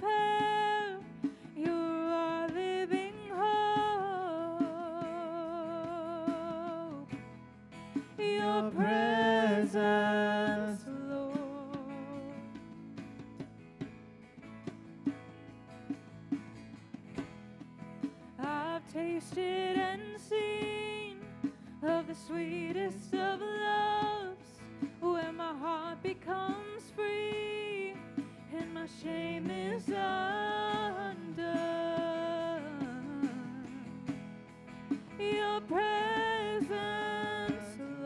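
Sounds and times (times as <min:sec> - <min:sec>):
worship band playing: 0:00.9 - 0:26.5
person singing: 0:08.2 - 0:12.5, 0:35.3 - 0:38.0.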